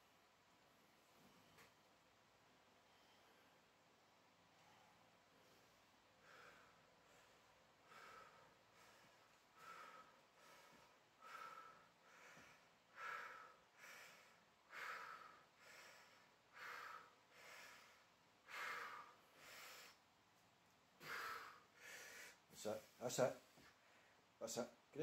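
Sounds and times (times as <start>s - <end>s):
man breathing hard: 4.5s - 20.0s, 21.0s - 24.3s.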